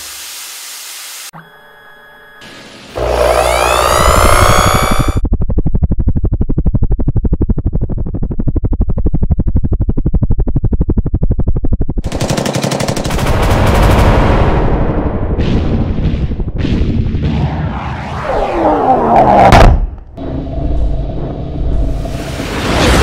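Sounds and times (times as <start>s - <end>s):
falling electronic sweep: 3.0s - 5.2s, 17.5s - 23.0s
rapid cannon burst: 12.0s - 18.8s
rushing blast: 17.2s - 23.0s.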